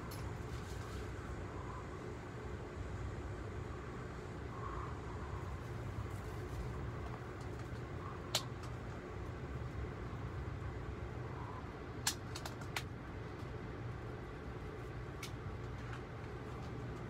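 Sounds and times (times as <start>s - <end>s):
sharp clicks: 12.0s - 12.9s.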